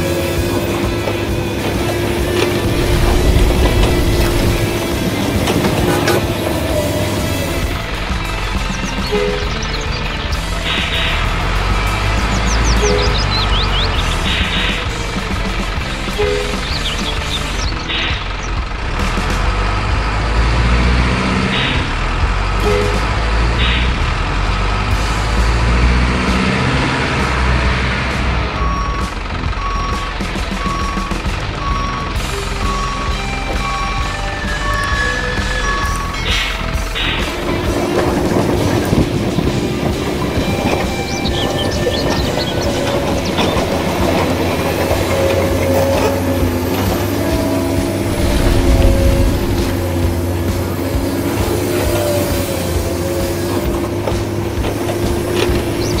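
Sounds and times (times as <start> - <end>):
electric motor whine: 0.0 - 8.5, 43.7 - 53.0
gear rattle and clicks: 0.0 - 20.9
diesel truck engine rumbling: 0.0 - 56.0.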